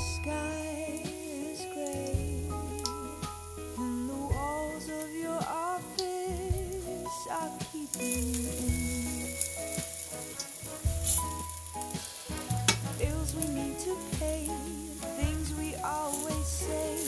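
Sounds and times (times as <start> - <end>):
background music with bass line: 0.0 - 17.0
pancakes sizzling in a frying pan: 7.5 - 17.0
spatula scraping and tapping pan: 9.6 - 13.4.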